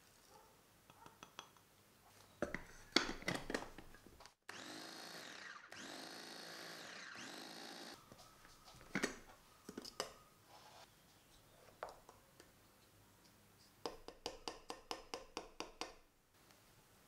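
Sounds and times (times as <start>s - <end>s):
food chopper motor whining: 4.5s - 8.1s.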